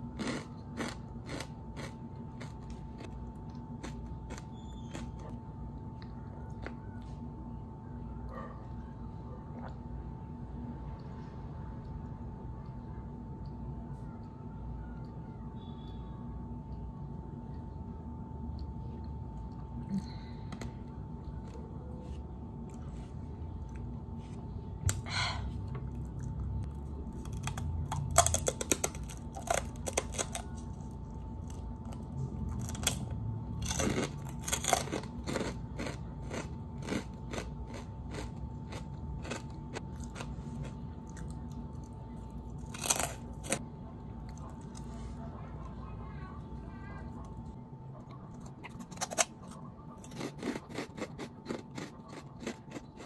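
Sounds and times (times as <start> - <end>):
crunching crispy snacks: 0.0 - 5.4, 27.0 - 43.6, 48.4 - 53.0.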